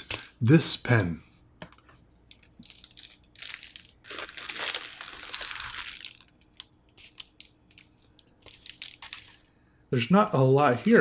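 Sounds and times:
plastic mailer crinkling: 2.4s - 11.0s.

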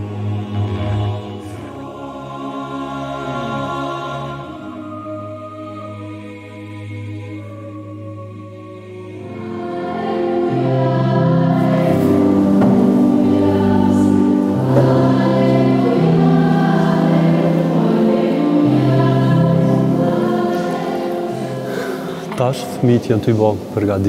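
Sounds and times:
children's choir singing a hymn: 0.0s - 24.0s.

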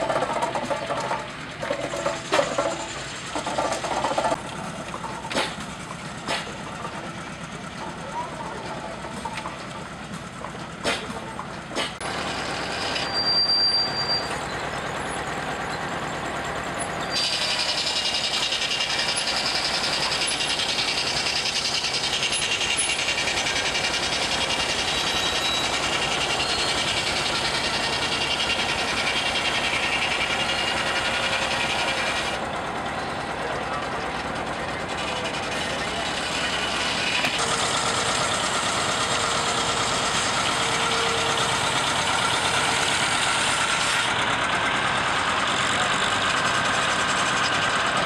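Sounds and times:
saw blade cutting log: 0.0s - 4.4s, 5.1s - 6.6s, 10.8s - 13.5s, 17.1s - 32.4s, 34.8s - 44.2s.

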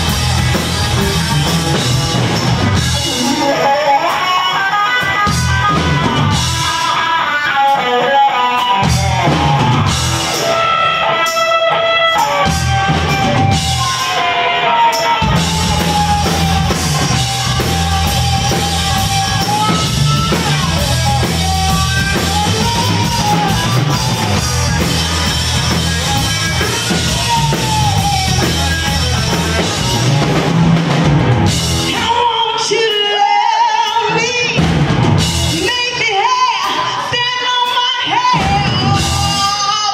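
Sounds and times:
live rock band playing: 0.0s - 39.9s
woman singing: 31.9s - 34.7s, 35.5s - 39.9s.

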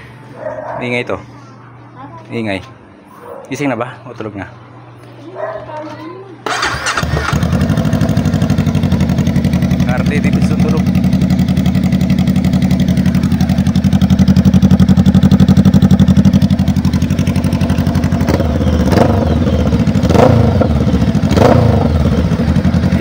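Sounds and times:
motorcycle engine idling: 6.5s - 23.0s.

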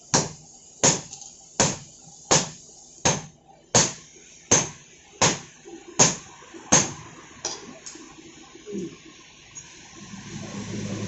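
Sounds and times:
hammer striking hot metal on anvil: 0.1s - 7.6s.

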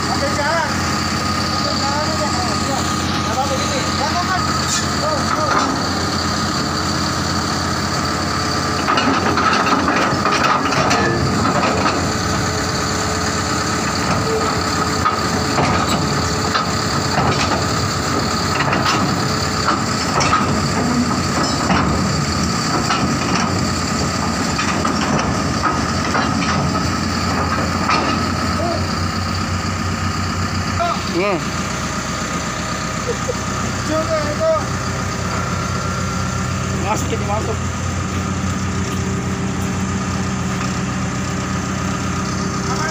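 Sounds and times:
bulldozer diesel engine whining: 0.0s - 42.9s
steel track clanks: 0.1s - 7.1s, 8.0s - 31.6s.

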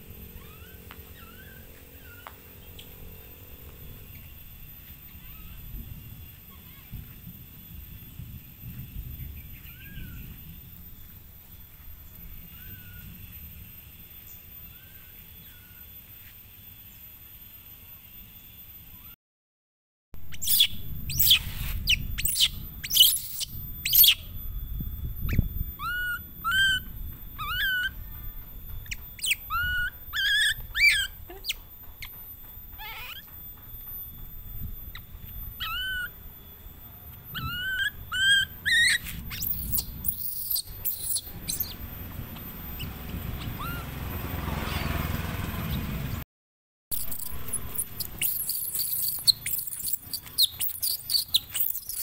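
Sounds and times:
baby monkey whimpering: 0.1s - 2.8s, 5.1s - 5.7s, 9.6s - 10.4s, 12.5s - 13.0s, 25.8s - 28.1s, 28.8s - 32.1s, 32.7s - 33.3s, 34.9s - 36.2s, 37.3s - 41.8s, 42.4s - 44.0s, 47.0s - 52.0s
monkey shrieks: 0.2s - 2.9s, 5.1s - 5.7s, 9.6s - 10.4s, 12.5s - 13.1s, 20.3s - 24.3s, 25.8s - 28.1s, 28.9s - 32.1s, 32.7s - 33.3s, 34.9s - 36.2s, 37.3s - 44.0s, 47.0s - 52.0s.

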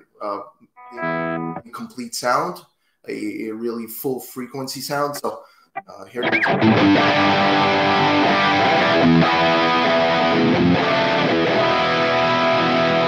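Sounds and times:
distorted electric guitar chords: 0.8s - 1.7s, 5.8s - 13.0s.

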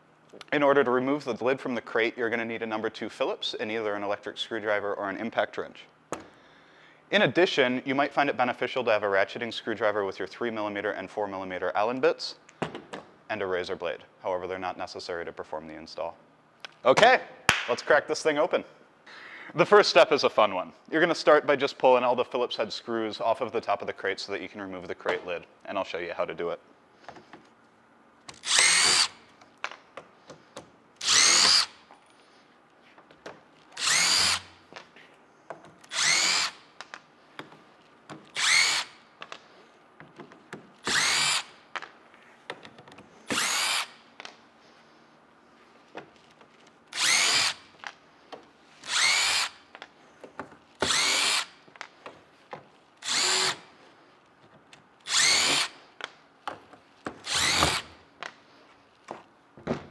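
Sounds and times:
power driver whirring: 28.3s - 29.2s, 31.0s - 31.8s, 33.8s - 34.6s, 35.8s - 36.6s, 38.2s - 39.0s, 40.8s - 41.6s, 43.3s - 44.0s, 46.9s - 47.7s, 48.8s - 49.6s, 50.8s - 51.6s, 53.0s - 53.7s, 55.0s - 55.8s, 57.2s - 58.0s.

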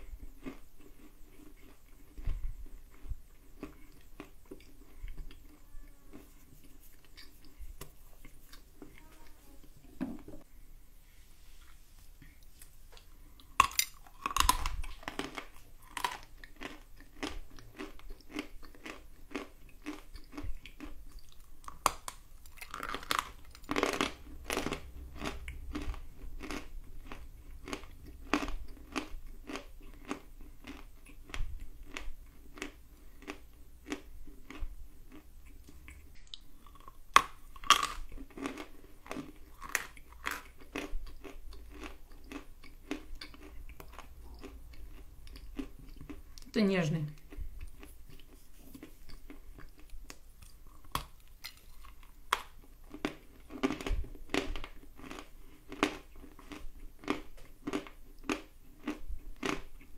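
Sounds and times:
crunchy chewing: 0.0s - 9.3s, 12.2s - 59.9s
crunching bite: 13.4s - 46.2s, 47.2s - 59.9s.

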